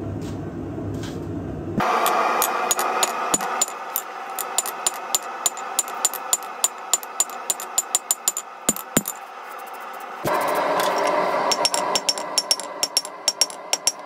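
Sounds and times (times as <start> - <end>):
hammer striking steel on anvil: 1.8 - 14.0.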